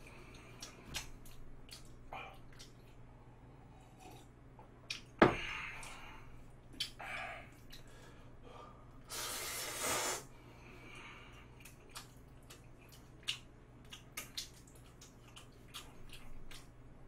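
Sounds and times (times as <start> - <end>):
slurping noodles: 9.1 - 10.2.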